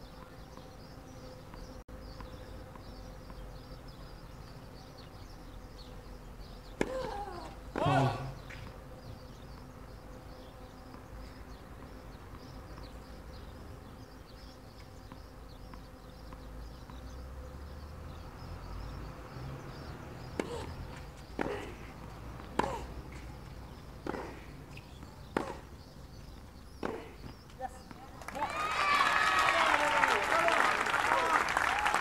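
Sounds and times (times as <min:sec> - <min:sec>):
faint insects chirping: 0:00.0 - 0:32.0
tennis racket striking ball: 0:06.8 - 0:08.7, 0:20.4 - 0:25.8, 0:26.7 - 0:27.4.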